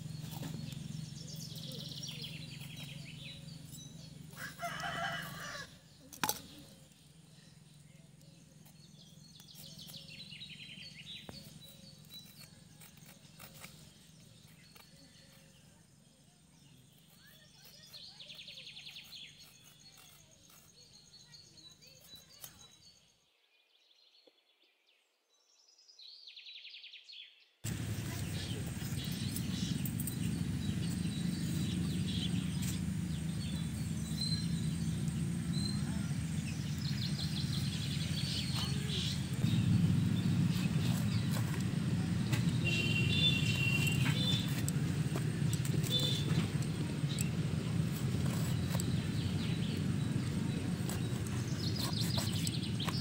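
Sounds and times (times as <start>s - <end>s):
small bird calls: 0.0s - 23.2s, 27.2s - 53.0s
rooster crowing: 4.4s - 5.7s.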